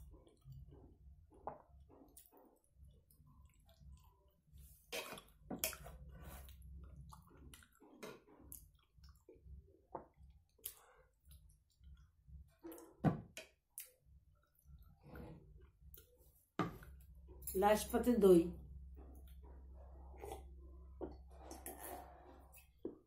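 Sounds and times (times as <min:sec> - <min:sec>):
chewing: 0:05.0 - 0:09.5.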